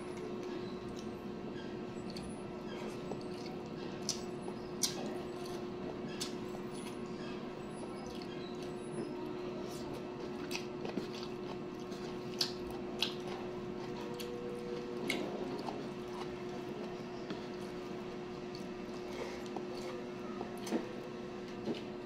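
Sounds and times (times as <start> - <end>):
steady low hum: 0.0 - 22.0
person chewing food: 2.0 - 7.0, 8.0 - 8.7, 9.7 - 20.8.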